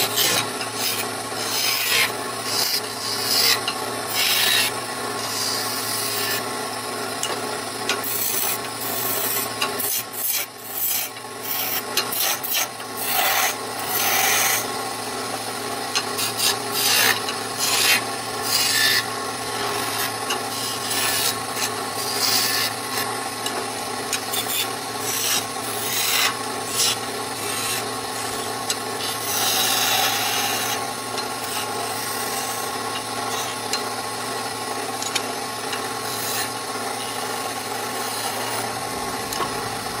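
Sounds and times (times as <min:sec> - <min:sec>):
scraper cutting spinning wood: 0:00.0 - 0:40.0
wood lathe running: 0:00.0 - 0:40.0.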